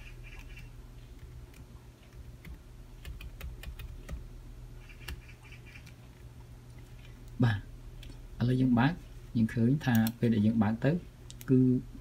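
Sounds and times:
laptop keyboard typing: 0.3 - 4.2, 4.8 - 6.9.

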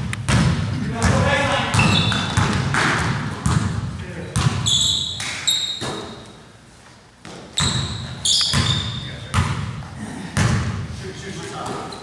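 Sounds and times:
basketball bouncing on gym floor: 0.0 - 6.2, 7.2 - 10.9
sneakers squeaking on floor: 0.3 - 6.5, 7.2 - 10.8, 11.6 - 12.0.

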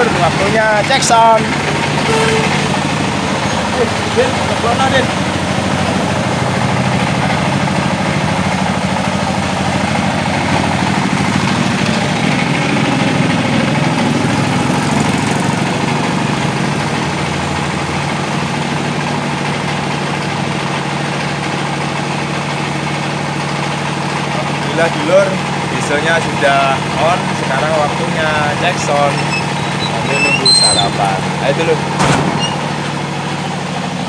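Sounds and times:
diesel generator idling: 0.0 - 34.0.

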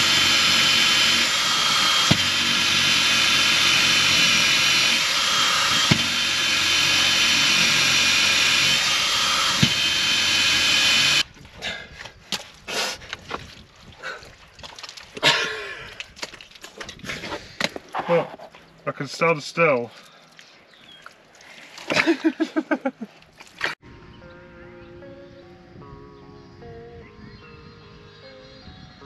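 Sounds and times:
power drill boring through wood: 0.0 - 11.3
scuffing in wet mud: 11.3 - 18.8.

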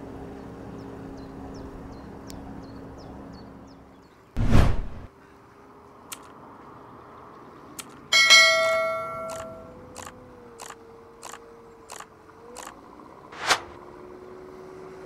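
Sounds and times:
light clicks: 6.1 - 6.4, 7.7 - 8.0, 9.3 - 12.8
bell ringing: 8.1 - 9.7.

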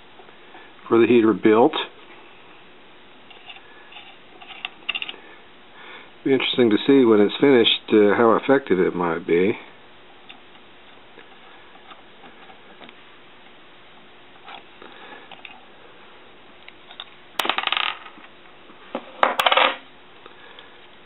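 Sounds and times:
metal parts clinking: 3.3 - 5.2.

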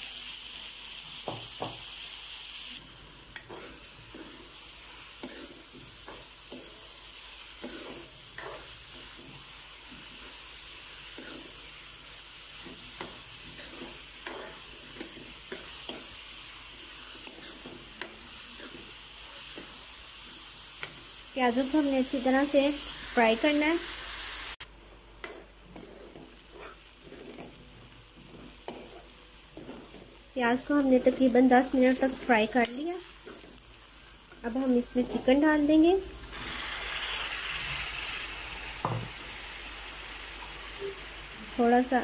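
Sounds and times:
onions sizzling in hot oil: 0.0 - 42.0
metal spoon scraping a pan: 3.4 - 11.8, 12.4 - 22.5, 25.2 - 35.7.

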